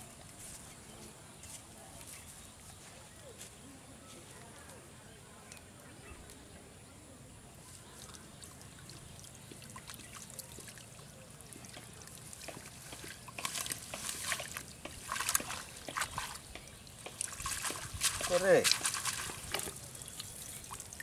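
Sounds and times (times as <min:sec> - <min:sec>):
water splashing and trickling: 0:07.4 - 0:21.0.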